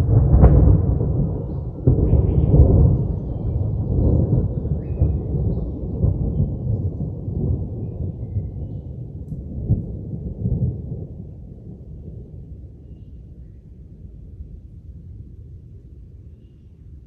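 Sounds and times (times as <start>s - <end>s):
rolling thunder: 0.0s - 12.8s.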